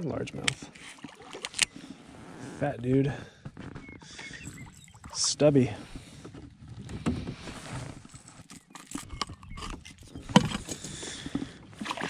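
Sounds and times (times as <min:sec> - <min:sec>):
fish and pliers handling noise: 0:08.2 - 0:11.4.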